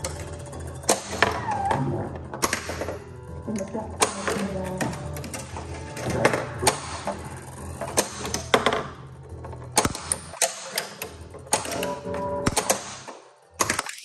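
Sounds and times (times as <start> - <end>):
pinball flippers and ball clacking: 0.0 - 14.0.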